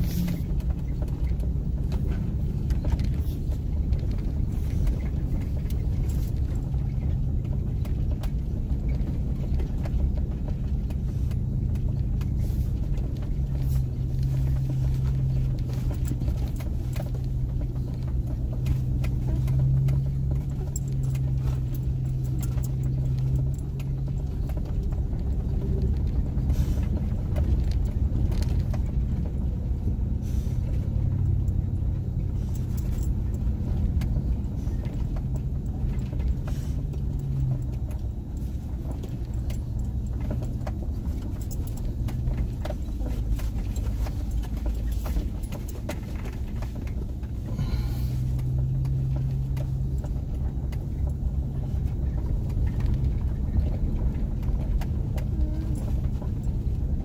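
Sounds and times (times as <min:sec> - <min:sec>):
pickup truck engine running low: 0:00.0 - 0:57.0.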